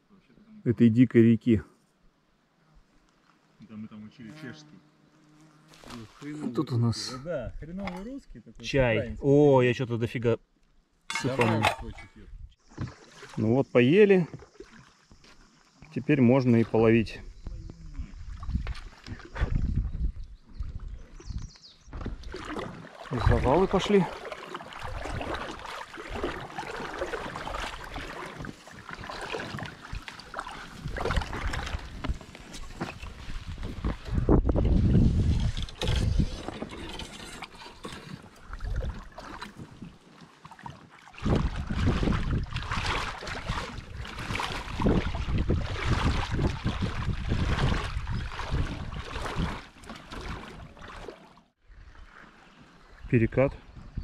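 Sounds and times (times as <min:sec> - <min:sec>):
river water: 0:05.7 - 0:09.9, 0:10.5 - 0:54.0
paddle splashes and knocks: 0:11.1 - 0:12.0, 0:12.7 - 0:13.5, 0:14.1 - 0:15.6, 0:18.2 - 0:53.0
low rumble on microphone: 0:17.2 - 0:22.2.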